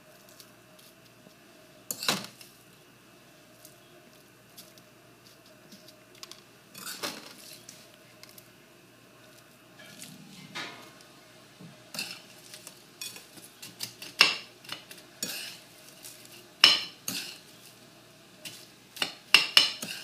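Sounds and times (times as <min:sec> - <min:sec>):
metal spoon scraping a pie dish: 0:06.7 - 0:07.6, 0:11.9 - 0:15.6, 0:16.2 - 0:17.4.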